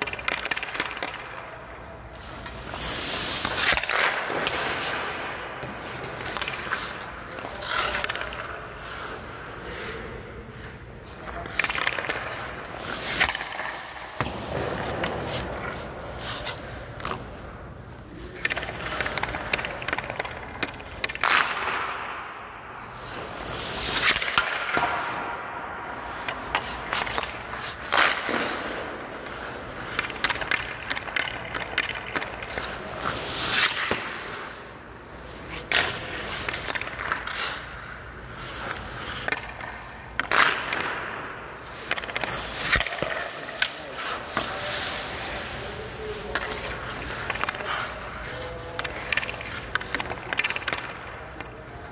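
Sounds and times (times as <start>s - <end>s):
sticks and pucks knocking: 0.0s - 1.4s, 5.6s - 8.6s, 18.3s - 21.8s, 26.1s - 51.9s
skate blades scraping ice: 0.0s - 22.2s, 22.8s - 51.9s.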